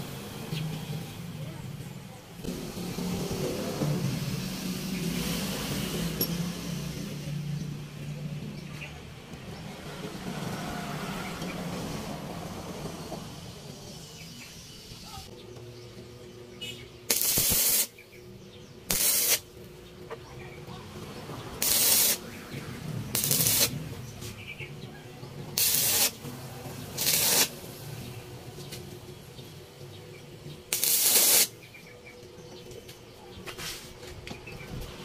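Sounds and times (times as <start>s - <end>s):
arc welder crackling and hissing: 0.0s - 8.2s, 16.6s - 19.9s, 21.5s - 31.9s.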